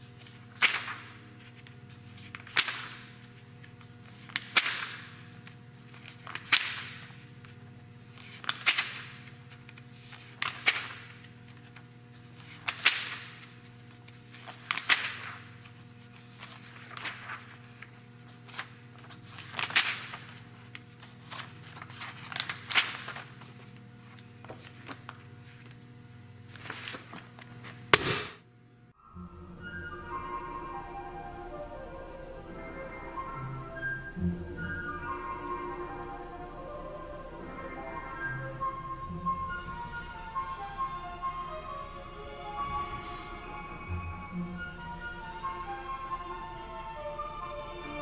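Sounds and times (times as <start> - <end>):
magazine pages turning: 0.0 - 28.0
steady low hum: 0.0 - 48.0.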